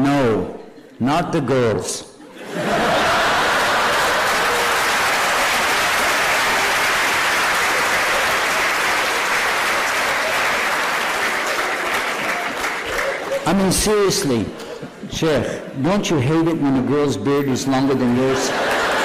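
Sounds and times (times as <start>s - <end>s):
audience applauding: 2.6s - 13.9s, 18.1s - 19.0s.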